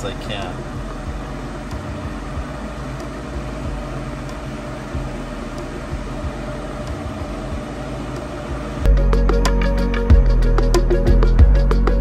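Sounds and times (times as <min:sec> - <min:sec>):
electric fan whirring: 0:00.0 - 0:12.0
small fridge humming: 0:00.0 - 0:12.0.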